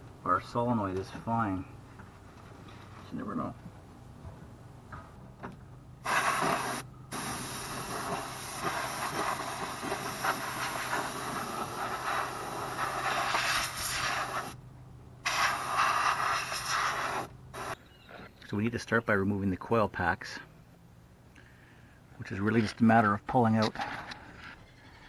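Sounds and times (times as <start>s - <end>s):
compressed air duster hissing: 6.0s - 14.6s, 15.2s - 17.8s.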